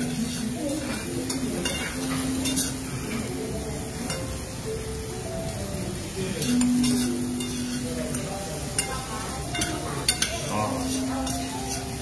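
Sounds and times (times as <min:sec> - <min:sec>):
meat sizzling in a pan: 0:00.0 - 0:12.0
metal tongs clicking on pan: 0:00.1 - 0:02.8, 0:06.4 - 0:12.0.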